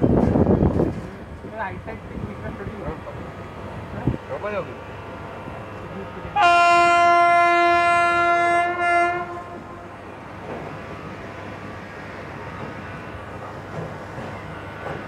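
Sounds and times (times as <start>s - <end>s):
train running on track: 0.0s - 15.0s
train horn blast: 6.4s - 10.0s.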